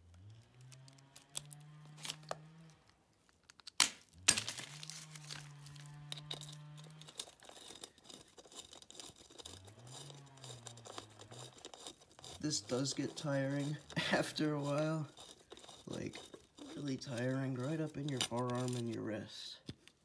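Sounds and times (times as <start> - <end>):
plastic sheeting crinkling: 4.4 - 6.1.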